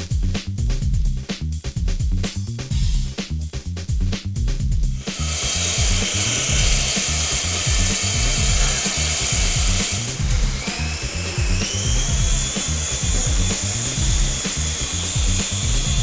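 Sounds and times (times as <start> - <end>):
background music with beat: 0.0 - 16.0
toy helicopter motor whirring: 5.0 - 16.0.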